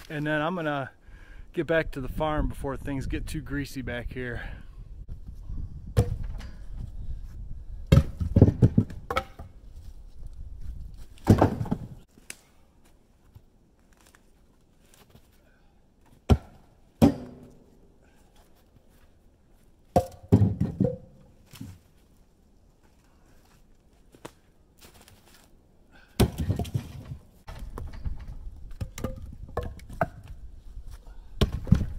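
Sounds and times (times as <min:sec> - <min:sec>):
firewood thuds and knocks: 0:06.0 - 0:06.9, 0:07.9 - 0:09.5, 0:11.1 - 0:12.0, 0:16.2 - 0:17.6, 0:19.9 - 0:21.8, 0:26.1 - 0:30.4, 0:31.4 - 0:31.9.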